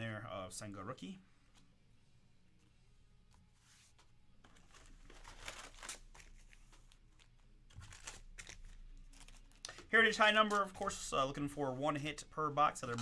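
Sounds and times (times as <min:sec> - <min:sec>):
foil packs crinkling: 0:04.5 - 0:09.8.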